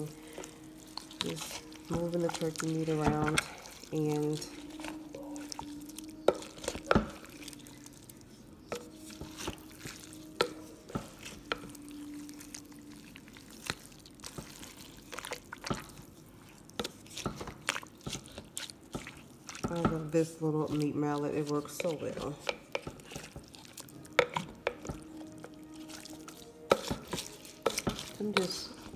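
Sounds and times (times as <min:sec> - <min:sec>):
wet squelches of mashed meat: 0:00.0 - 0:28.9
utensil clicking in pot: 0:26.7 - 0:28.7.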